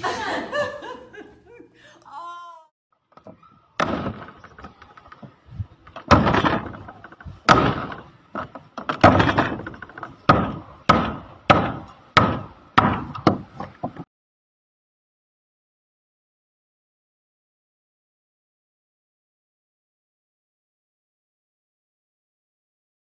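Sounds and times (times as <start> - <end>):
hammer knocking on wooden planks: 3.2 - 14.1.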